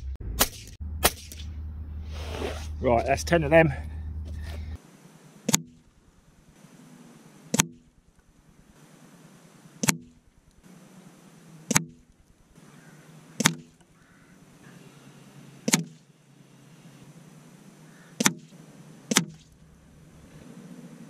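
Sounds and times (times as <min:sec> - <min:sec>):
pellet striking target board: 0:07.5 - 0:07.8, 0:09.8 - 0:10.2, 0:11.7 - 0:12.1, 0:13.4 - 0:13.8, 0:15.7 - 0:16.0, 0:18.2 - 0:18.5, 0:19.1 - 0:19.5.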